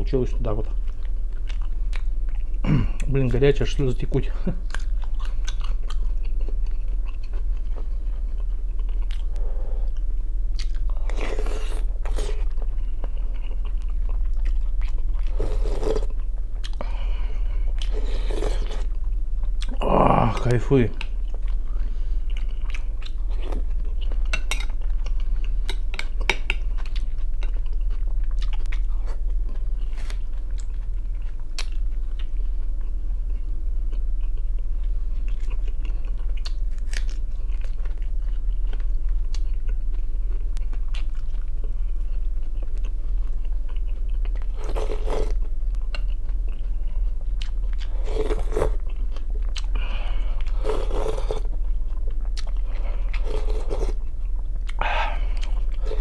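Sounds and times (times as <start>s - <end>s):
low hum: 0.0s - 56.0s
chewing and crunching: 0.2s - 3.4s, 4.1s - 56.0s
slurping from a spoon: 48.0s - 48.8s, 50.3s - 51.5s, 53.1s - 54.0s.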